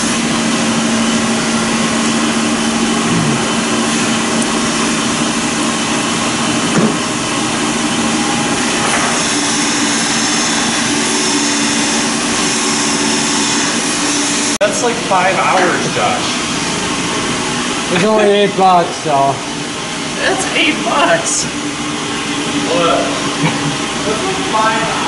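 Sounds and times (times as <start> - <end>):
machine whir with hum: 0.0 - 25.0.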